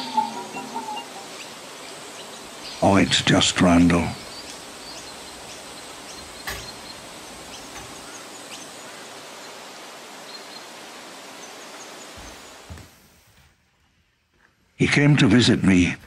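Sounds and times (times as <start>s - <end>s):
faint high chirps: 0.0s - 3.2s
steady outdoor hiss: 0.0s - 16.0s.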